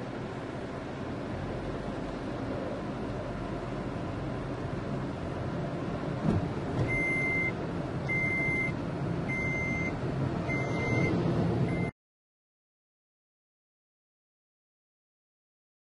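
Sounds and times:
vehicle engine and road noise: 0.0s - 12.0s
thump: 6.2s - 7.0s
high electronic beeps: 8.1s - 8.7s, 9.3s - 9.9s, 10.5s - 11.1s.

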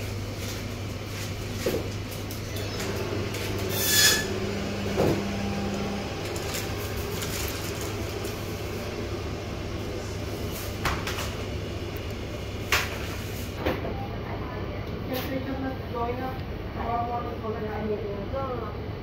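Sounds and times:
refrigerated cases humming: 0.0s - 18.6s
higher hum: 2.3s - 13.6s.

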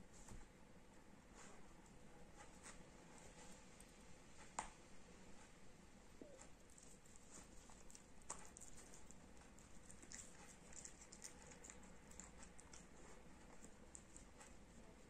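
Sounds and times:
dog chewing a plush toy: 6.5s - 14.7s.

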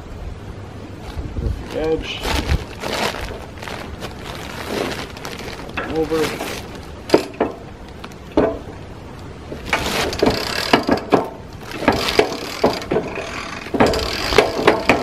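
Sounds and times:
knocks: 8.4s - 8.7s, 10.2s - 13.1s
winch ratchet clicking: 9.7s - 15.0s.

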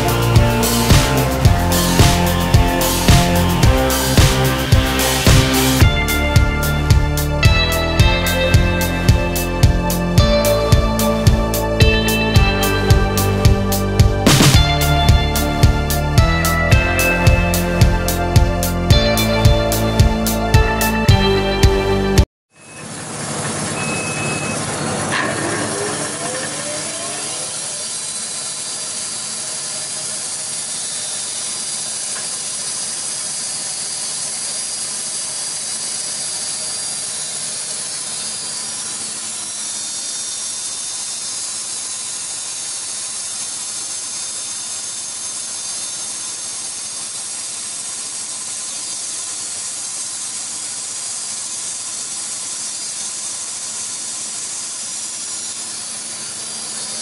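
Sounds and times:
machine rising tones: 0.0s - 28.9s
band sawmill whirring: 0.0s - 57.0s.

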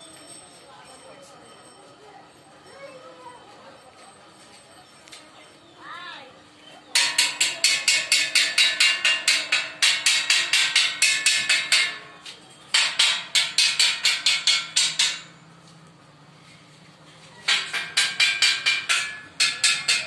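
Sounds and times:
hammer striking steel: 7.0s - 15.4s, 17.4s - 20.0s.

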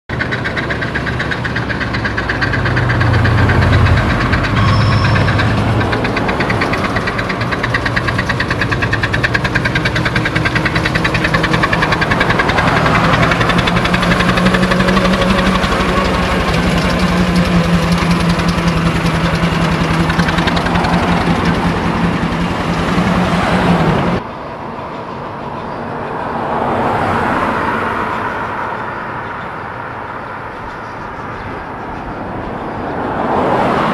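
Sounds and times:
mechanical clatter: 0.1s - 23.6s
steam wagon chuffing: 0.1s - 26.2s
road traffic: 0.1s - 33.9s
vehicle passing: 0.8s - 33.9s.

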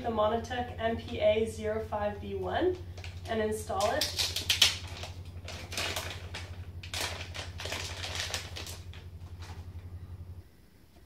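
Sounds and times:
low electrical hum: 0.0s - 11.0s
plastic bag crinkling: 2.8s - 9.8s.

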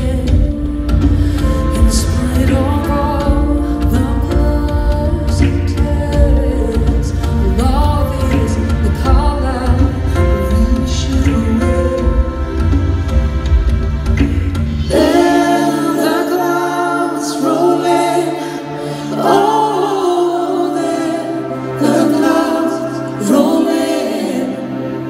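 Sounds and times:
woman singing with vibrato: 0.0s - 12.7s, 14.8s - 25.0s
band of keyboards and drums: 0.0s - 25.0s.

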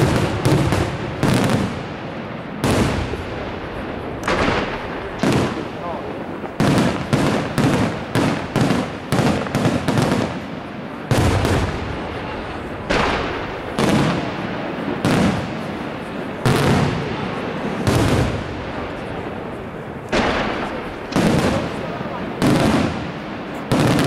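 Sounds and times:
firework shells bursting: 4.1s - 15.8s, 19.6s - 24.0s.

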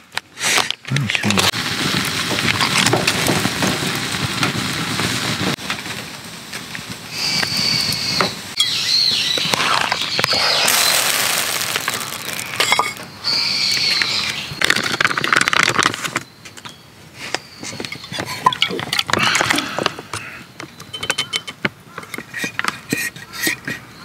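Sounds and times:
background hiss: 3.9s - 14.6s
birds chirping: 7.2s - 24.0s.

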